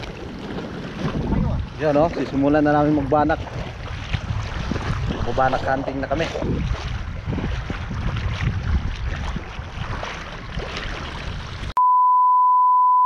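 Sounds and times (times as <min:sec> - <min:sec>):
lapping shallow seawater: 0:00.0 - 0:11.8
wind rumbling on microphone: 0:00.0 - 0:11.8
steady high beep tone: 0:11.8 - 0:13.0.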